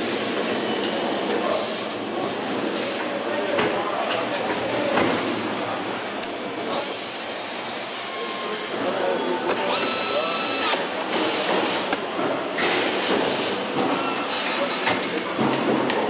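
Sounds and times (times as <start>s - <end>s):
steady factory din: 0.0s - 16.0s
pneumatic tool whining: 6.7s - 8.8s, 9.6s - 11.4s.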